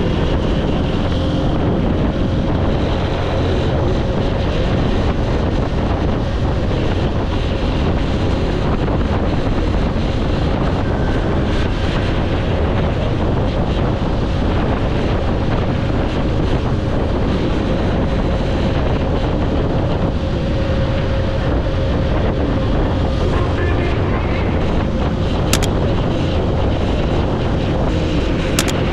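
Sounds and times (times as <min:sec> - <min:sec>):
motorcycle engine running: 0:00.0 - 0:17.8, 0:24.4 - 0:28.9
wind rushing over microphone: 0:00.0 - 0:28.9.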